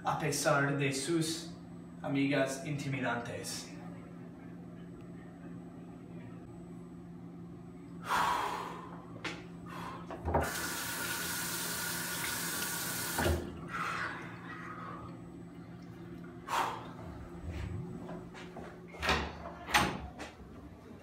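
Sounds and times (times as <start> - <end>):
steady low hum: 0.0 - 21.0
sink tap running: 10.2 - 13.6.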